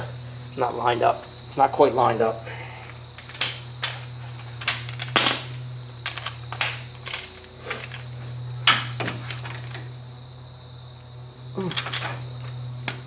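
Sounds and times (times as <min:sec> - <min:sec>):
metal hand tools clinking: 0:11.6 - 0:12.4.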